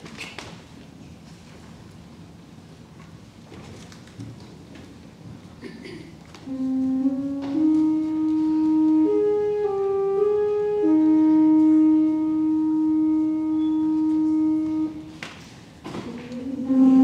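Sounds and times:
pipe organ held chords: 6.4s - 15.2s, 16.4s - 17.0s.

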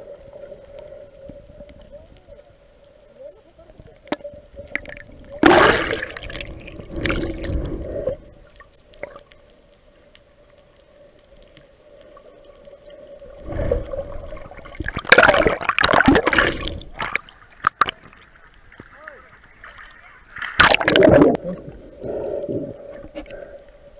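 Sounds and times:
faint steady hum: 0.0s - 23.9s
water sloshing and bubbling: 0.0s - 23.9s
sharp water splashes: 4.7s - 7.6s, 13.4s - 18.2s, 19.6s - 21.4s.

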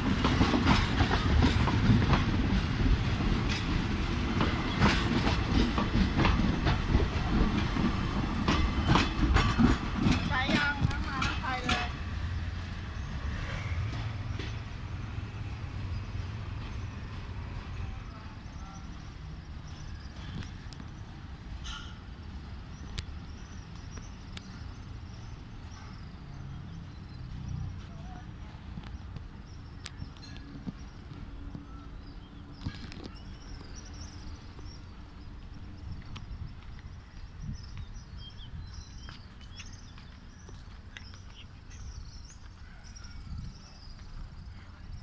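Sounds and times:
train departing rumble: 0.0s - 45.0s
small birds chirping: 10.2s - 45.0s.

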